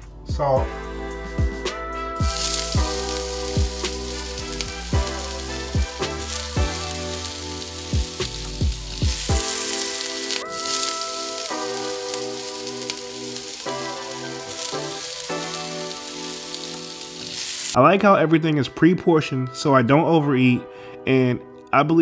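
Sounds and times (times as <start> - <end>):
background music with chords: 0.0 - 22.0
food sizzling in a frying pan: 2.2 - 17.8.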